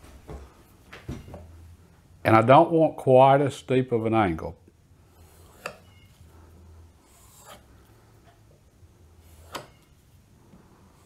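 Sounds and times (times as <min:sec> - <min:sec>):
knife rubbing on leather strop: 0:05.2 - 0:05.9, 0:07.0 - 0:07.7.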